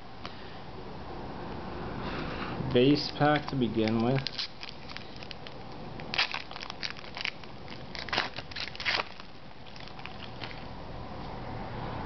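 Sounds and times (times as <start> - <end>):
foil wrapper crinkling and tearing: 3.0 - 10.7.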